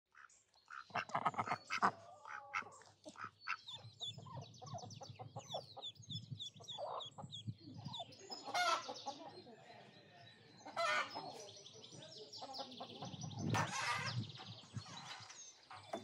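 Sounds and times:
ducks quacking: 0.1s - 9.2s
ducklings peeping: 0.2s - 9.3s, 10.6s - 16.0s.

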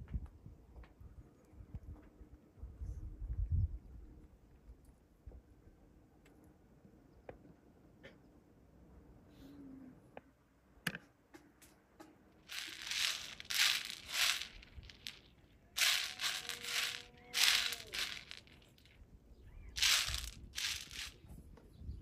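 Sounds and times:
plastic rustling and crinkling: 12.4s - 19.0s, 19.8s - 21.2s.

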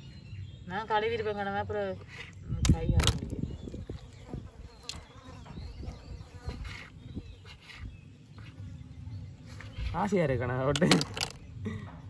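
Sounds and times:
insect buzzing: 2.0s - 10.2s.

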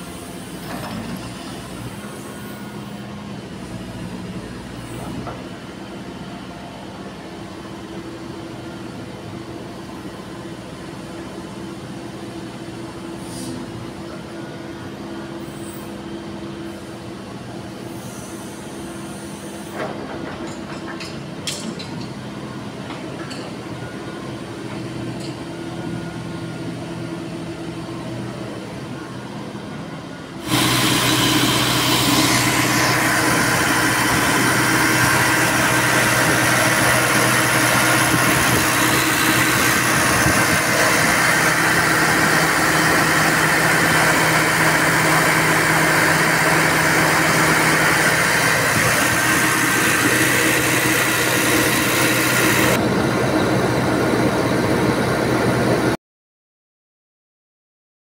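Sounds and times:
diesel engine idling: 30.4s - 54.8s.

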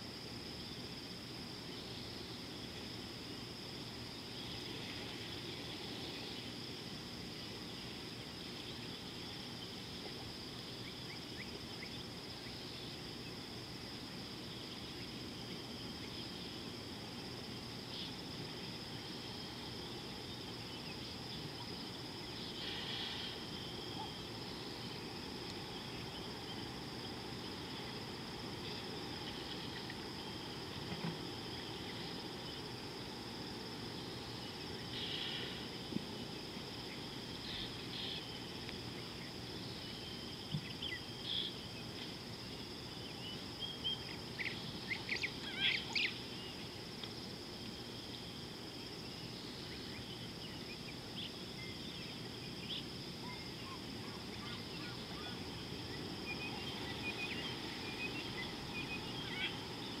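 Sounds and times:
insect drone: 0.0s - 60.0s
bird calls and chirps: 43.2s - 46.6s, 56.3s - 59.6s.

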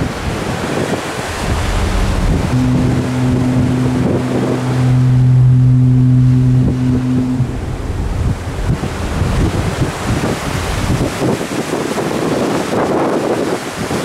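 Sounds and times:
sea water rushing: 0.0s - 14.0s
wind buffeting microphone: 0.0s - 14.0s
ship's horn blast: 0.5s - 13.4s.

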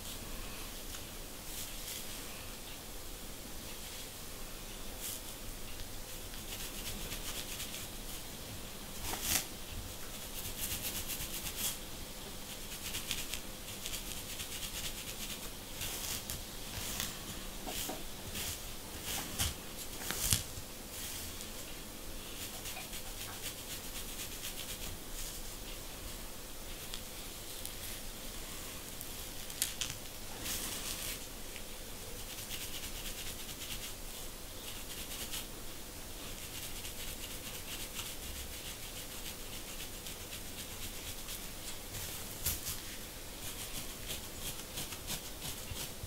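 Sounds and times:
comb scratching scalp: 6.1s - 8.2s, 9.0s - 11.8s, 12.4s - 21.5s, 22.2s - 25.6s, 29.4s - 31.3s, 32.2s - 35.5s, 36.2s - 46.0s.

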